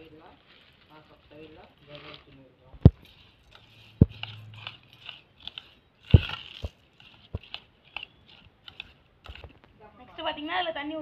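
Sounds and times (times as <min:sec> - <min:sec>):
spoon scraping in bowl: 0:02.8 - 0:09.7.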